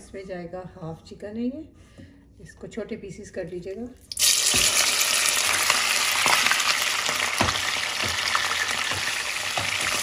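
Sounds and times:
chicken sizzling in hot oil: 0:04.1 - 0:10.0.

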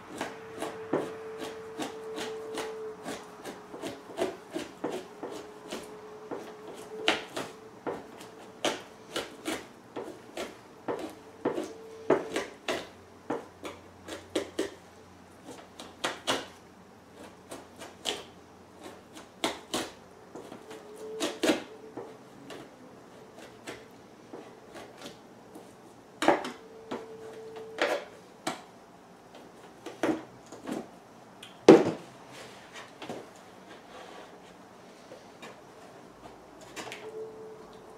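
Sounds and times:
knife scraping pelt: 0:00.1 - 0:12.9.

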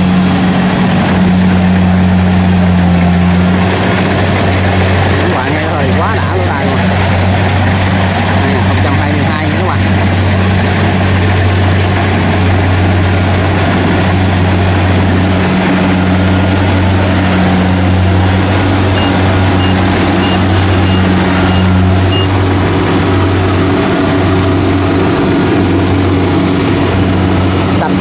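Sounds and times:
combine harvester engine running: 0:00.0 - 0:28.0
short high beeps: 0:18.9 - 0:22.3.

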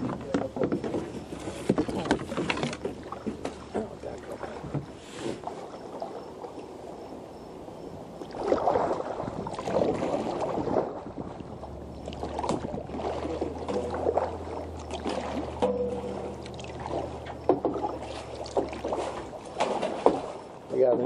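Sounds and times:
kayak paddle splashing water: 0:00.0 - 0:07.4, 0:08.1 - 0:21.0
water dripping: 0:11.8 - 0:20.3.

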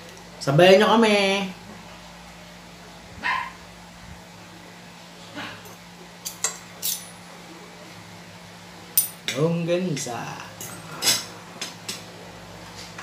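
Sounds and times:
cutlery clinking on plates: 0:05.7 - 0:07.2.

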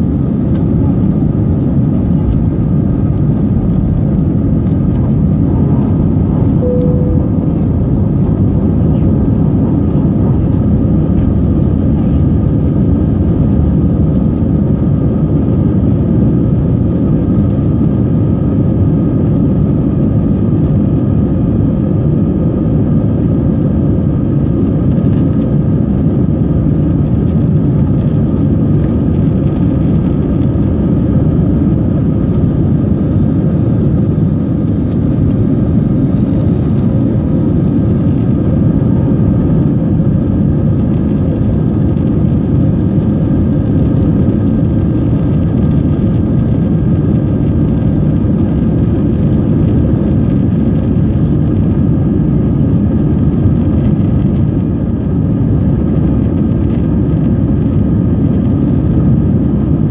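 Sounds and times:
jet engines rumbling in cabin: 0:00.0 - 0:59.9
brief tone: 0:06.6 - 0:08.1.

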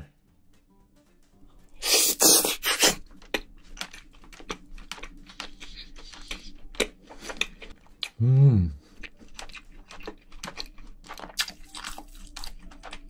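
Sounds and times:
chewing mouth clicks: 0:02.4 - 0:08.2, 0:08.9 - 0:13.0.

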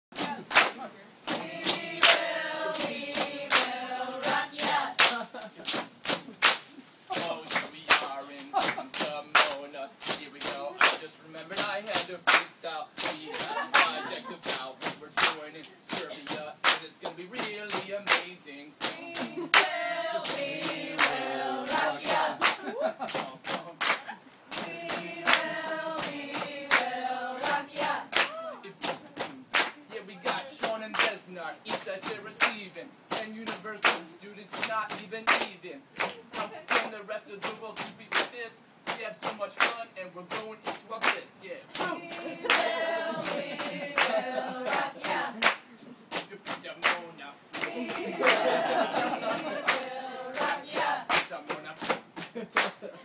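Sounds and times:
hands clapping in rhythm: 0:00.1 - 0:53.0
group of voices singing: 0:01.3 - 0:05.4, 0:07.2 - 0:23.6, 0:24.5 - 0:28.7, 0:29.7 - 0:35.4, 0:38.9 - 0:45.9, 0:47.5 - 0:51.3.

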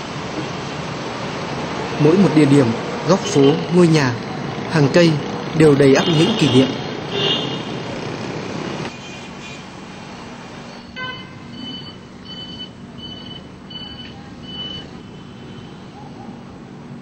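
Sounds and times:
city street traffic: 0:00.0 - 0:17.0
short high beeps: 0:10.8 - 0:14.9.

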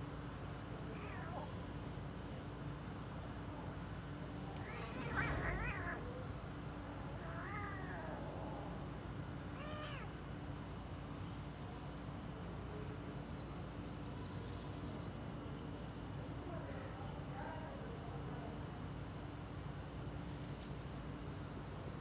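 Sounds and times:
kittens meowing: 0:00.9 - 0:01.6, 0:04.6 - 0:06.3, 0:07.1 - 0:08.8, 0:09.6 - 0:10.2.

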